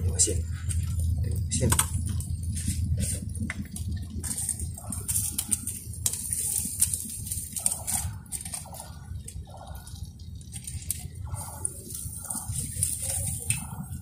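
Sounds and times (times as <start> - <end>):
charcoal fire crackling and sizzling: 0.0 - 14.0
steady low rumble: 0.0 - 14.0
sharp pops and clicks: 0.8 - 8.7.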